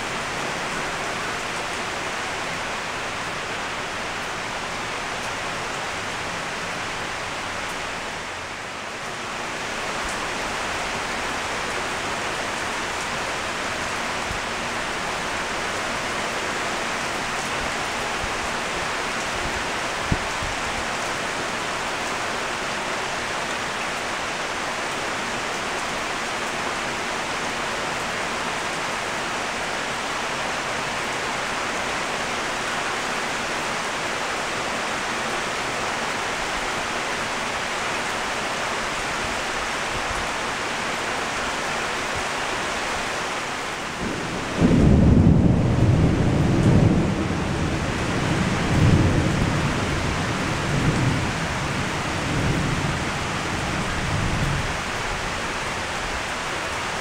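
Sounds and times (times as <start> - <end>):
heavy rain on leafy trees: 0.0 - 57.0
thunder rumbling: 43.9 - 54.8.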